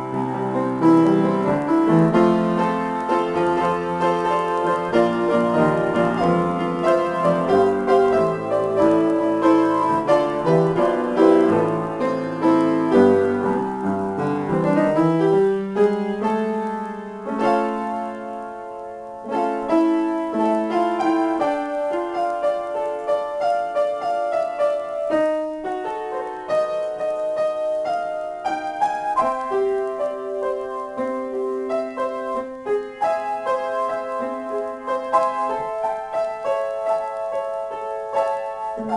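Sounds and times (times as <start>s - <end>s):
solo piano: 0.0s - 38.9s.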